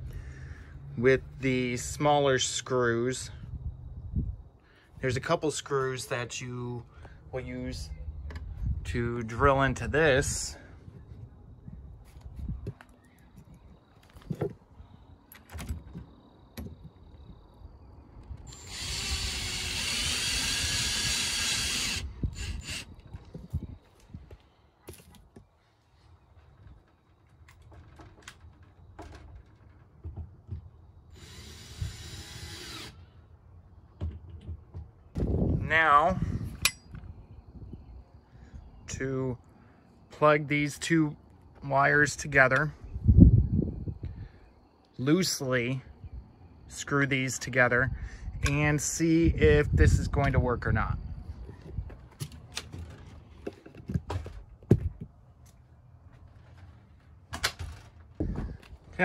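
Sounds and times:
power drill driving a screw: 0:18.4 - 0:22.9, 0:31.1 - 0:33.0.

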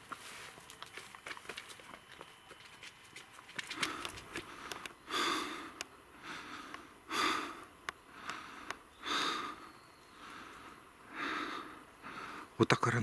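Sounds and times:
footsteps in dry leaves: 0:00.0 - 0:04.4
person breathing hard: 0:03.7 - 0:12.6.

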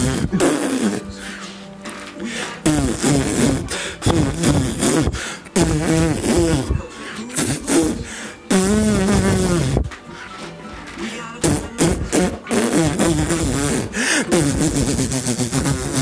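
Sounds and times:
person singing wordlessly: 0:11.0 - 0:14.4.

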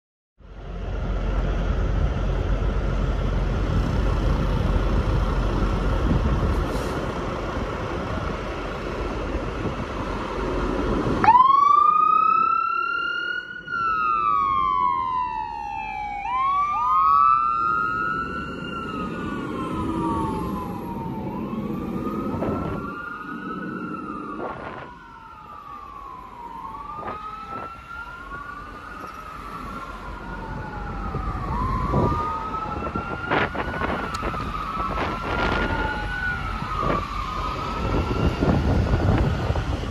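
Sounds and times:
fire engine rumbling: 0:00.4 - 0:39.9
siren wailing: 0:11.0 - 0:39.9.

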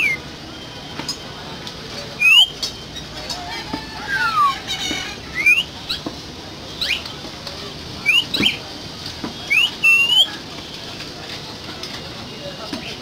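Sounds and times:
bird whistling: 0:02.2 - 0:03.1, 0:03.9 - 0:04.7, 0:05.3 - 0:06.0, 0:06.8 - 0:07.1, 0:08.0 - 0:08.6, 0:09.5 - 0:10.4.

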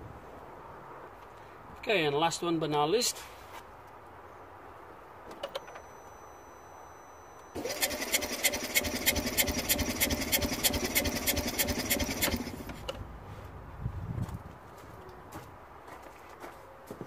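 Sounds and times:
engine cranking on starter: 0:07.5 - 0:12.9.

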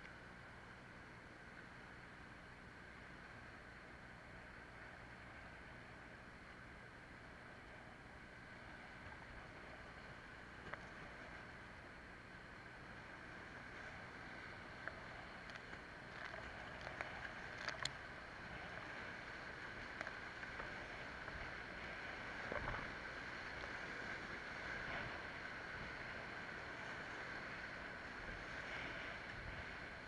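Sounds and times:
paddle splashes: 0:12.9 - 0:30.0.

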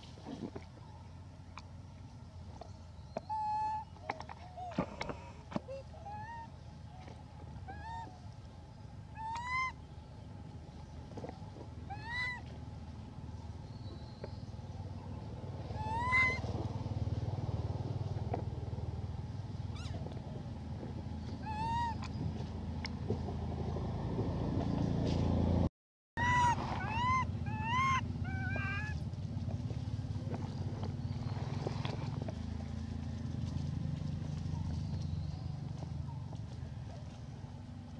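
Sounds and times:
low rumble: 0:00.0 - 0:37.9
macaque coo calls: 0:26.2 - 0:29.0.

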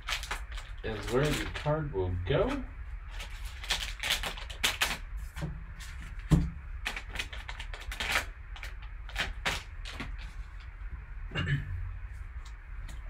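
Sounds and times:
plastic wrapping crinkling and tearing: 0:00.0 - 0:10.7.

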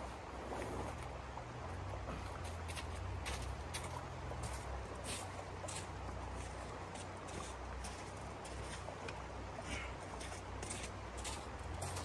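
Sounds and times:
shallow river rushing: 0:00.0 - 0:12.0
footsteps crunching on icy snow: 0:02.0 - 0:09.1, 0:09.8 - 0:12.0.

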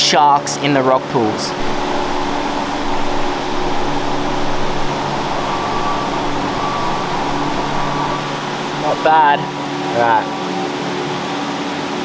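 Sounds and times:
gas burner rushing: 0:01.5 - 0:09.6
creek flowing: 0:01.5 - 0:09.7
pot of water boiling: 0:01.6 - 0:09.4.

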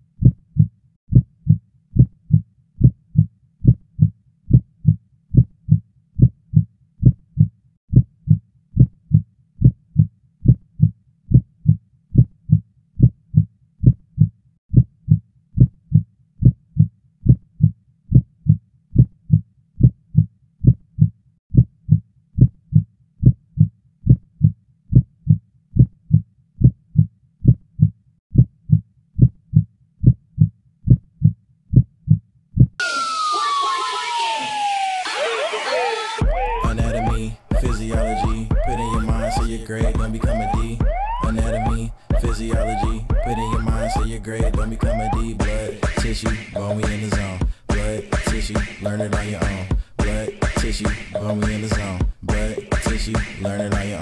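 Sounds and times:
heartbeat thuds: 0:09.6 - 0:14.9, 0:23.2 - 0:32.8, 0:36.2 - 0:54.0.

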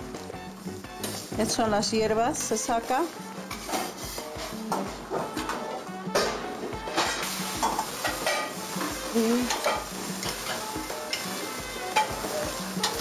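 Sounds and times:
food sizzling in pans: 0:00.0 - 0:13.0
utensils clinking against pots: 0:01.0 - 0:13.0.

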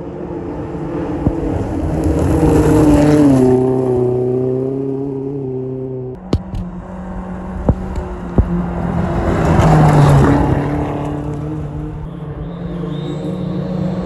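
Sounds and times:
rally car passing at full throttle: 0:00.0 - 0:14.0.

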